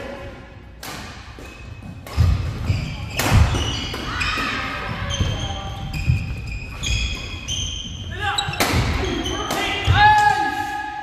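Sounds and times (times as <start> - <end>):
shoes squeaking on court floor: 1.3 - 10.0.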